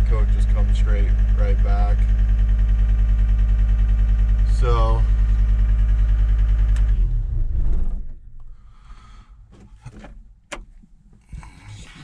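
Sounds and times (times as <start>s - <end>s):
diesel engine idling and shutting off: 0.0s - 9.9s
light clicks in cab: 9.5s - 11.6s.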